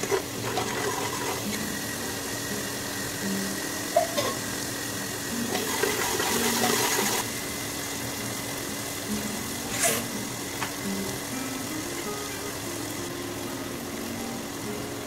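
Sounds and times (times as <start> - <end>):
oil sizzling: 0.0 - 15.0
soft background music: 0.0 - 15.0.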